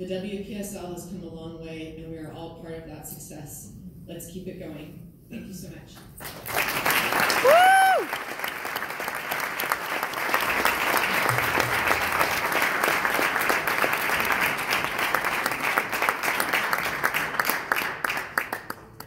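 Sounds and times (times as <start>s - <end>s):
audience applauding: 6.2s - 19.0s.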